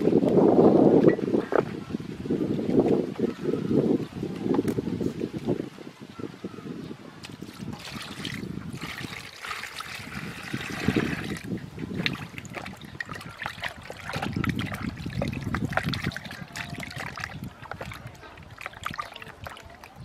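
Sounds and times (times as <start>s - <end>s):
hands sloshing water: 7.2s - 20.0s
water pouring into plastic basin: 7.2s - 20.0s.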